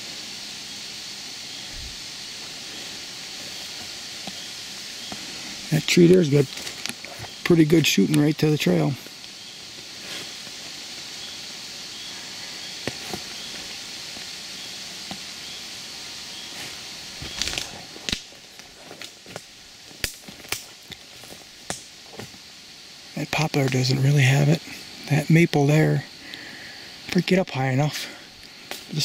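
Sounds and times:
faint outdoor hiss: 0.0 - 29.0
twigs and leaves crackling: 1.5 - 22.5
footsteps on forest floor: 1.8 - 8.3, 8.9 - 11.1, 12.6 - 14.3, 16.4 - 22.4
twigs snapping: 6.1 - 7.4, 17.2 - 22.4.

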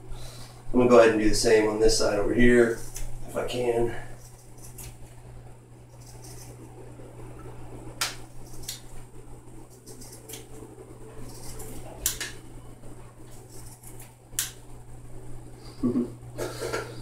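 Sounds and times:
steady low hum: 0.0 - 17.0
scissors snipping rawhide: 4.2 - 5.0, 9.7 - 10.5, 11.2 - 12.3.

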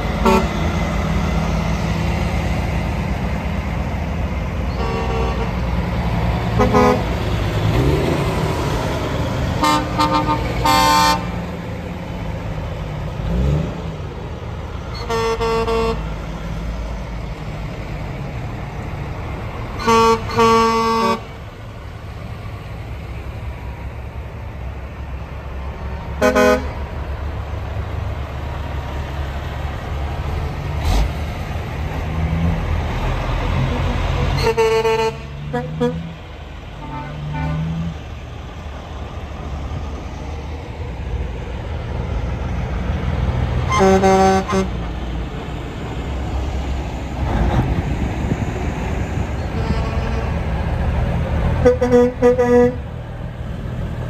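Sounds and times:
truck horns tooting: 0.0 - 0.8, 4.6 - 8.0, 9.6 - 11.5, 14.8 - 16.2, 19.7 - 21.4, 26.1 - 26.9, 33.4 - 37.9, 43.6 - 44.9, 49.4 - 50.8, 51.5 - 52.9
truck diesel engines rumbling: 0.0 - 54.0.

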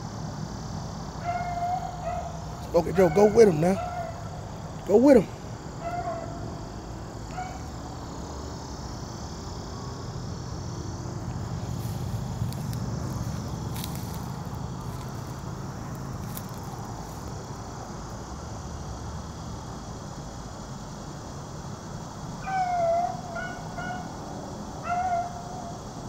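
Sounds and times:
insects droning: 0.0 - 26.0
rustling through tall weeds: 11.3 - 17.6.

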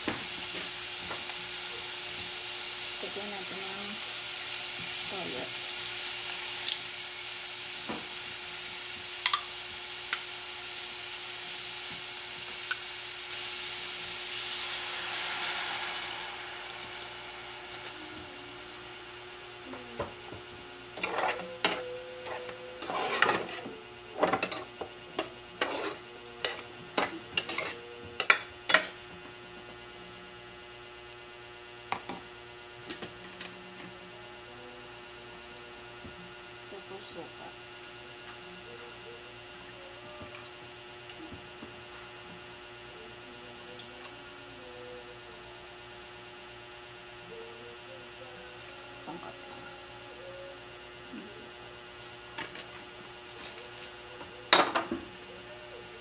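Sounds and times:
pork sizzling in a pot: 0.0 - 56.0
spoon stirring in metal pot: 21.0 - 23.7, 25.6 - 28.9.

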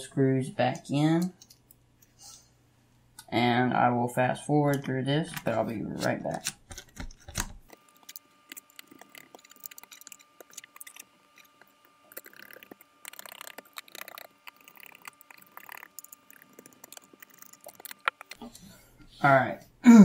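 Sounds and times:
screwdriver clicks and scrapes: 6.4 - 18.4.

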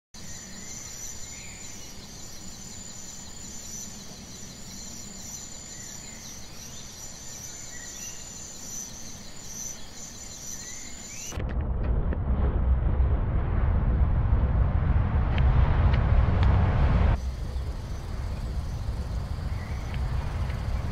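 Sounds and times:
bird chirps: 0.2 - 11.3, 17.2 - 20.9
insects chirring: 0.2 - 11.3, 17.2 - 20.9
low background rumble: 11.3 - 20.9.

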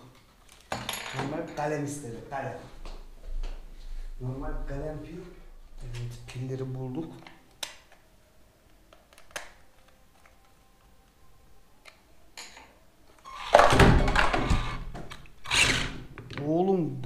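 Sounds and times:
toy truck electric motor whirring: 15.4 - 16.0.

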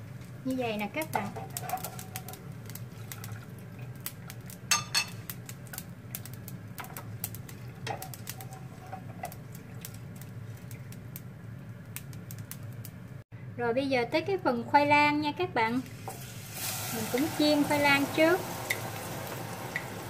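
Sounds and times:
frying oil crackling: 0.0 - 13.2, 15.2 - 20.0.

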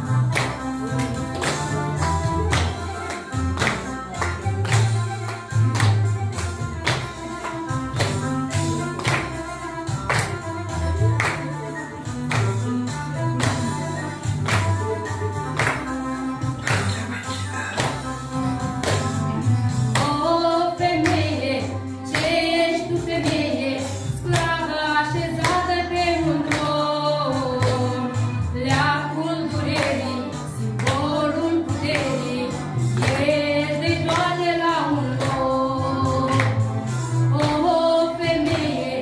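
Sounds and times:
backing music with steady beat: 0.0 - 39.0
woman and children singing: 20.0 - 39.0.

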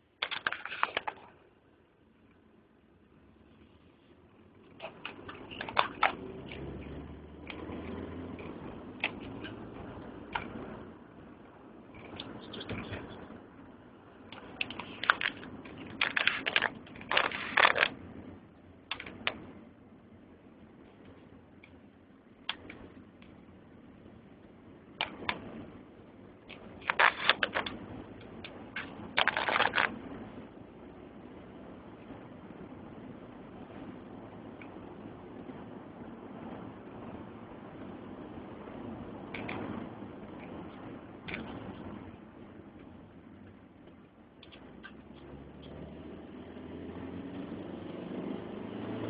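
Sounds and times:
car road noise rumble: 0.0 - 49.0
car rumbling from inside cabin: 3.0 - 16.0.

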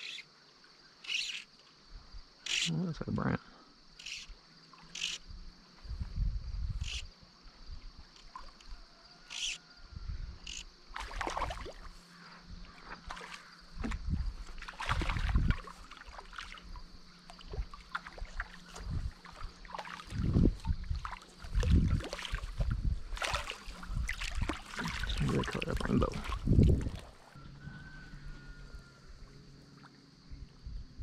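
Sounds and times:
fish splashing and thrashing in water: 10.9 - 12.0, 12.7 - 27.4.

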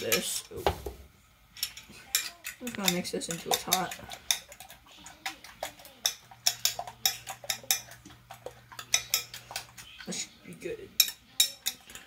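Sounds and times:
utensil clinking against ceramic bowl: 1.6 - 10.2, 10.9 - 12.0.

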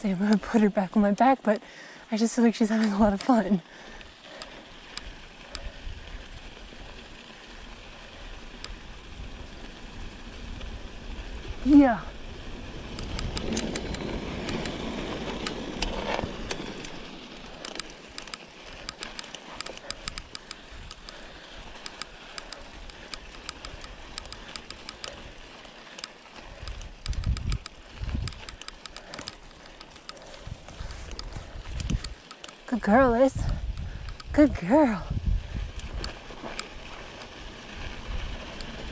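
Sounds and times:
sharp irregular clicks: 0.0 - 1.8, 2.4 - 11.8, 12.9 - 34.5, 35.7 - 36.9
bike tyres crunching on gravel: 0.0 - 38.9
wind rumbling on microphone: 4.8 - 17.6, 26.4 - 29.5, 30.2 - 32.2, 32.8 - 38.9.

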